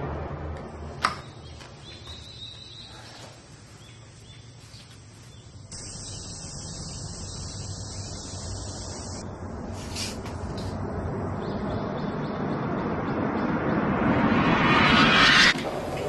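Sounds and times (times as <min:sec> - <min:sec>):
faint bird chirps: 0:01.2 - 0:09.2
high insect drone: 0:05.1 - 0:09.6.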